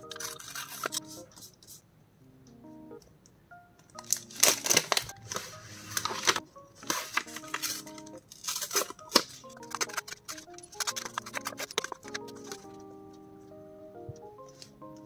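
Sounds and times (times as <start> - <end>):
paper rustling and crinkling: 0.0 - 1.8, 4.0 - 12.8
quiet background music: 0.0 - 15.0.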